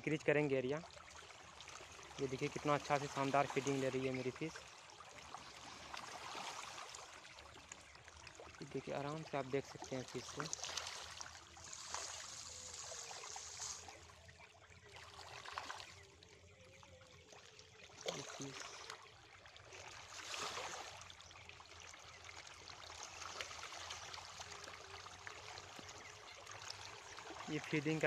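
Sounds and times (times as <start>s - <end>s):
fish splashing at water surface: 10.1s - 16.3s, 17.2s - 27.7s.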